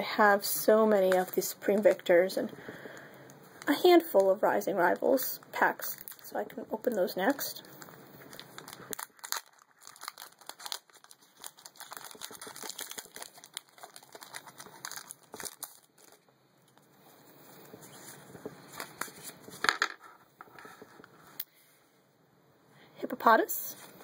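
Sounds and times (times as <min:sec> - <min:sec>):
foil wrapper crinkling and tearing: 0:03.6 - 0:06.3, 0:06.9 - 0:16.8.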